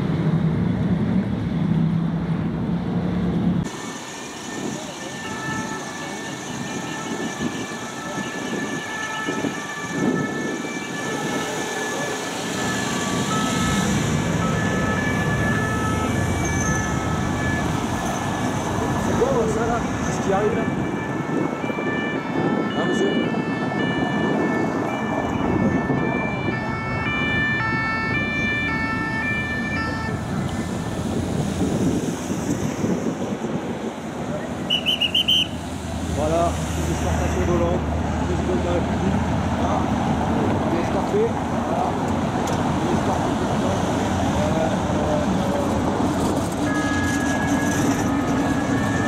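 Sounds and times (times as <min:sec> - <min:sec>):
road traffic engines: 0:00.0 - 0:49.0
siren tone: 0:03.9 - 0:18.6, 0:20.4 - 0:30.9, 0:46.6 - 0:49.0.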